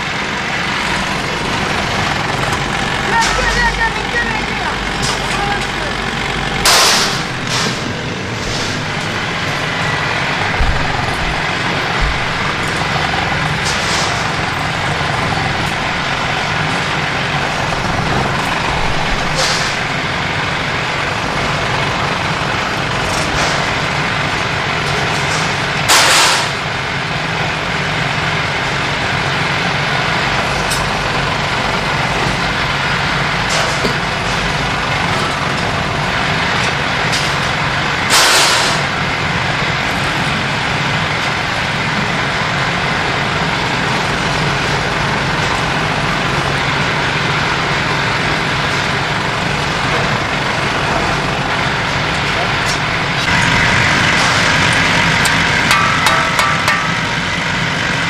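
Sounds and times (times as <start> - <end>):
drill press drilling steel: 0.6 - 20.6.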